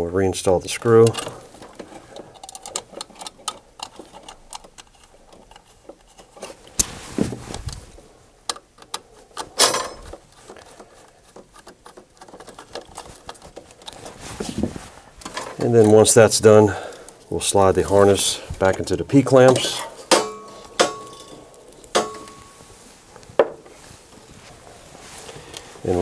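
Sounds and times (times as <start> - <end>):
light clicks and taps on metal: 8.5 - 14.0.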